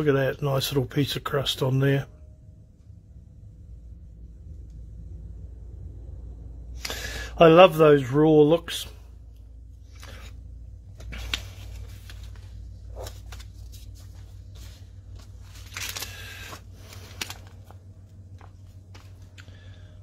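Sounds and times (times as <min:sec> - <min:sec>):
low steady hum: 0:00.0 - 0:20.0
paper and plastic rustling: 0:09.9 - 0:19.8.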